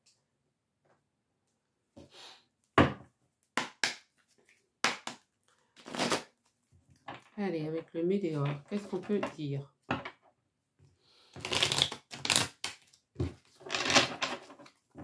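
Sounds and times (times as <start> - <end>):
cards being shuffled: 11.4 - 14.8.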